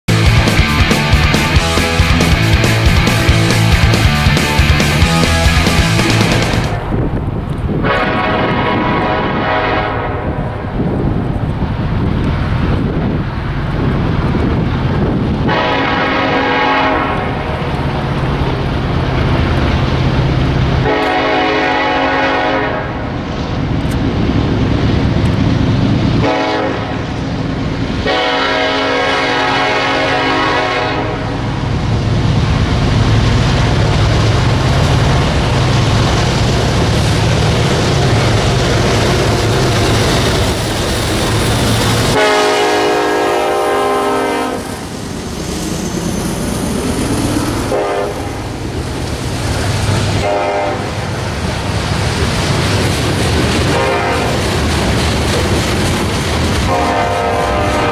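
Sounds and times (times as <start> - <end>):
diesel locomotive engines rumbling: 0.0 - 57.9
locomotive horn blasts: 7.8 - 10.6, 15.4 - 17.6, 20.8 - 23.0, 26.2 - 27.2, 28.0 - 31.4, 42.1 - 44.8, 47.7 - 48.4, 50.2 - 51.0, 53.7 - 54.4, 56.7 - 57.9.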